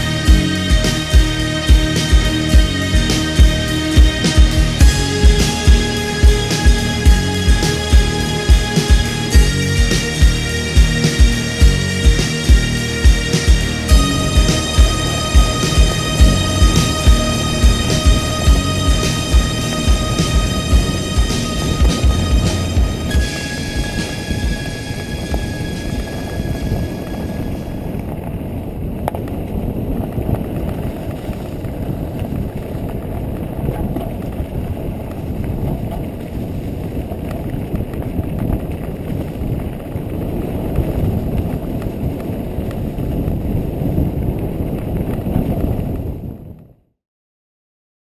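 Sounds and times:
background music: 0.0s - 28.0s
wind on microphone: 0.0s - 46.9s
bike tyres rumbling on dirt trail: 27.8s - 46.7s.

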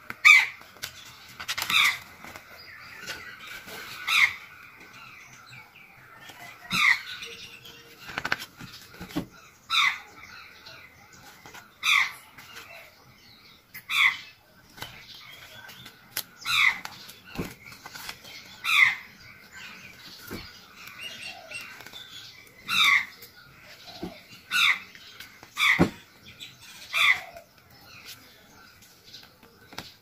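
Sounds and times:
pages turning: 0.6s - 4.0s, 7.9s - 9.3s.

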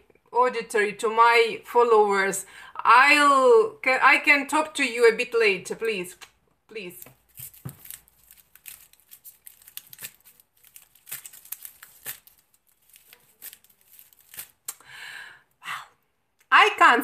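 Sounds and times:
soft rustling: 6.9s - 14.7s.

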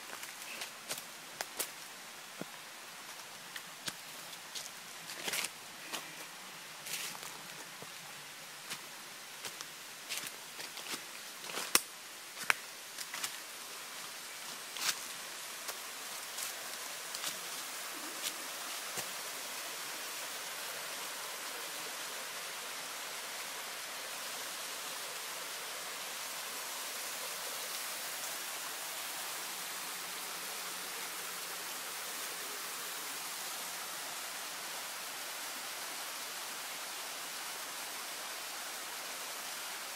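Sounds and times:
small waterfall rushing: 0.0s - 39.9s
brushing through leaves: 14.0s - 19.1s.

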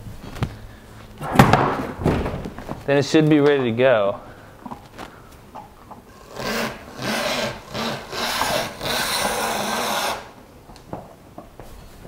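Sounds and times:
cable-taping tool rolling on wood: 6.1s - 10.2s.

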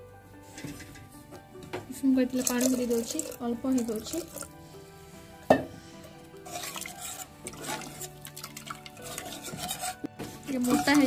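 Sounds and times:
ladle stirring in metal pot: 0.4s - 1.2s, 2.3s - 4.5s, 6.4s - 11.0s
metal knock: 5.5s - 5.7s.

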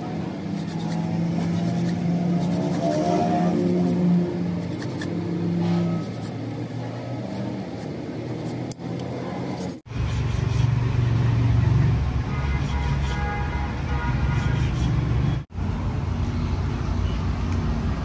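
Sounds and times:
file rasping on metal: 0.6s - 4.0s, 4.6s - 5.1s, 5.7s - 6.4s.

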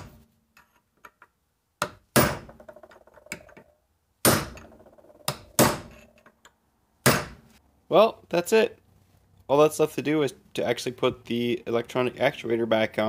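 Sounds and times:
hammer striking metal punch: 1.8s - 2.6s, 4.2s - 6.1s, 7.0s - 7.4s.

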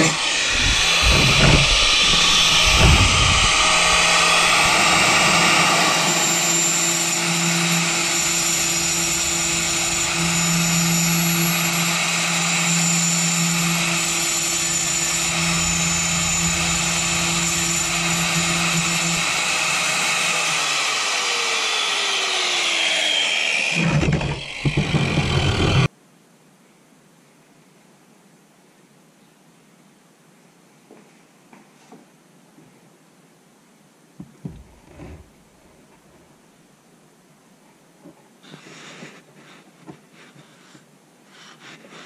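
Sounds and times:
rough noise: 0.0s - 21.0s, 23.1s - 25.9s
angle grinder cutting tile: 0.0s - 25.9s.

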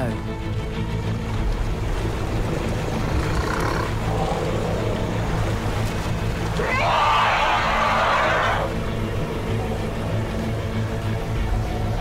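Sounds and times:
low drone: 0.2s - 12.0s
elephant calling: 3.0s - 5.2s.

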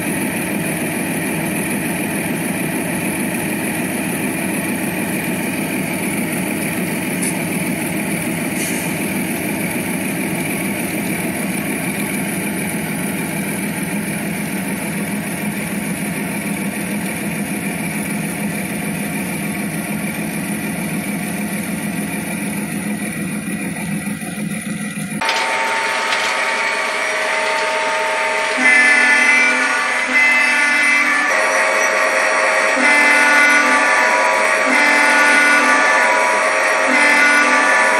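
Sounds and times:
model train diesel drone: 0.0s - 37.9s
steady tones: 25.2s - 37.9s.

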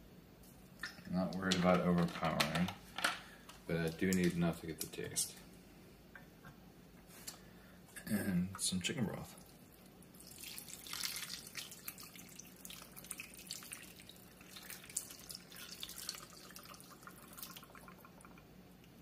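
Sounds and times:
broth pouring and splashing: 9.3s - 18.5s.

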